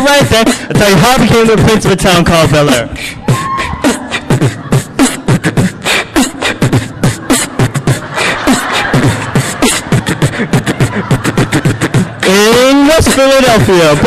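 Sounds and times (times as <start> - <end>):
beatboxed kick and snare: 0.0 - 14.0
person singing: 3.3 - 12.7.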